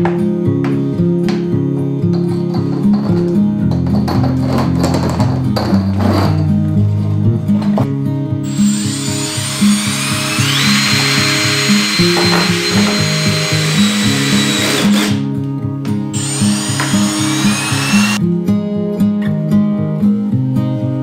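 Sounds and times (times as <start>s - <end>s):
guitar background music: 0.0s - 21.0s
cordless drill whining: 8.4s - 15.2s, 16.2s - 18.2s.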